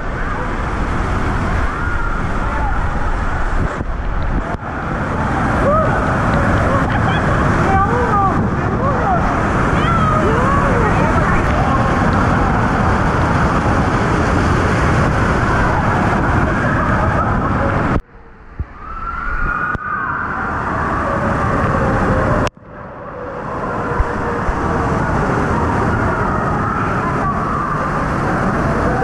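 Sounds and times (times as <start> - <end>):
waterfall rushing into pool: 0.0 - 29.0.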